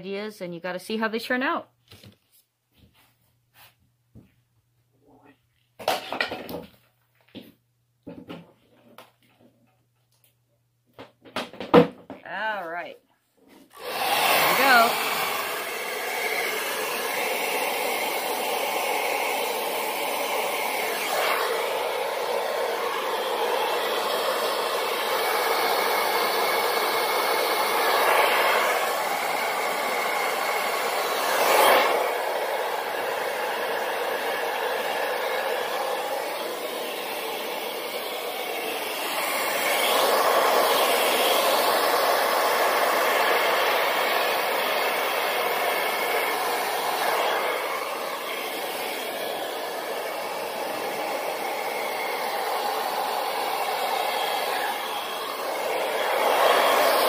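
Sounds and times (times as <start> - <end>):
hair dryer running: 13.5 - 57.0.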